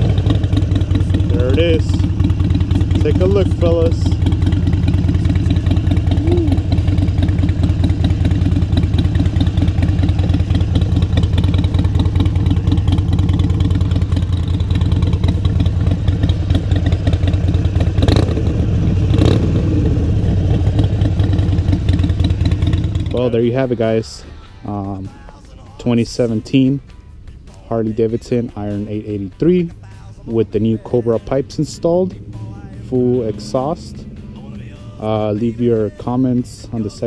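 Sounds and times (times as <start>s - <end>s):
motorcycle engine idling: 0.0s - 37.0s.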